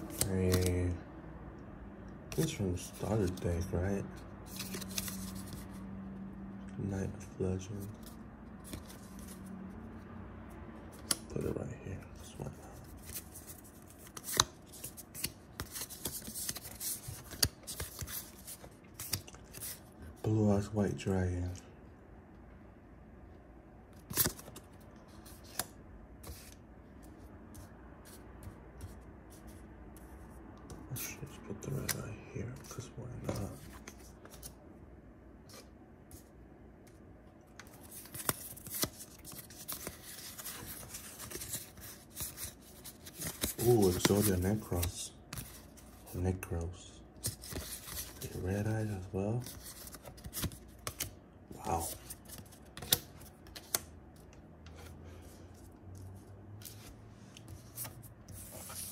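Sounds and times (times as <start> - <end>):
trading cards clicking and snapping: 0.0 - 0.8, 10.9 - 11.4, 14.0 - 18.3.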